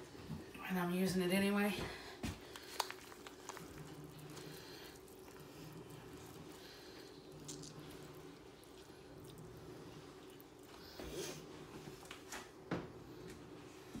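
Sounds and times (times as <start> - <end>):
low background hum: 0.0 - 14.0
ground beef squishing by hand: 2.2 - 12.3.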